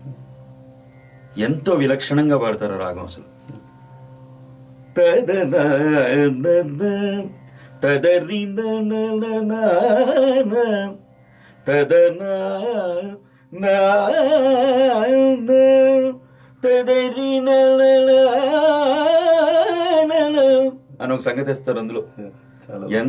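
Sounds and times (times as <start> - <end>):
steady drone: 0.0 - 23.0
man singing: 5.0 - 11.0, 11.6 - 21.2.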